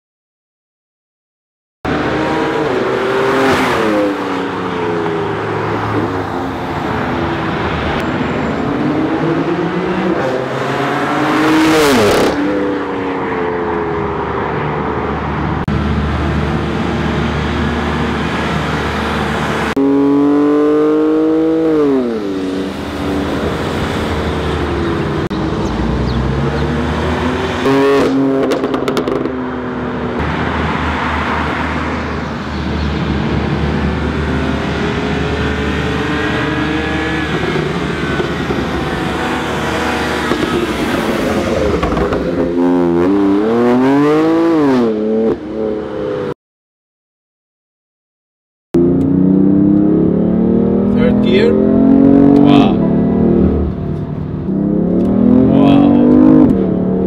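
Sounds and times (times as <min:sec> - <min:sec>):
car engine revving: 0:15.6 - 0:46.3, 0:48.8 - 0:57.0.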